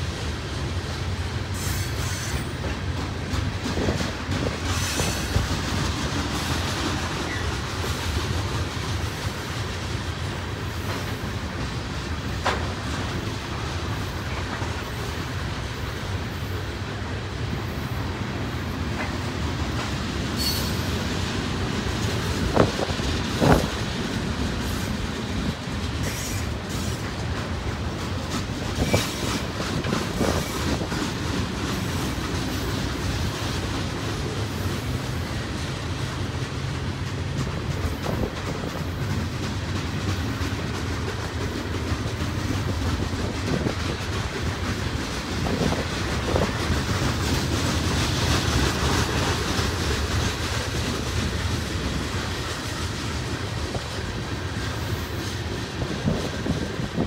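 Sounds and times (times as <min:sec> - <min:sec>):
train wheels rumbling on rail: 0:00.0 - 0:57.0
high wheel squeal: 0:20.4 - 0:20.9.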